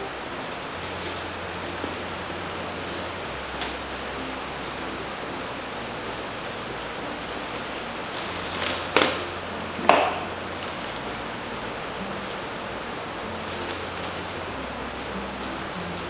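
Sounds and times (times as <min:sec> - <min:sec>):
background hiss: 0:00.0 - 0:16.0
cling wrap rustling: 0:00.7 - 0:04.1, 0:08.0 - 0:11.3, 0:12.0 - 0:12.6, 0:13.2 - 0:14.8
cling wrap crackling snaps: 0:02.6 - 0:04.0, 0:08.1 - 0:11.2, 0:13.4 - 0:14.8.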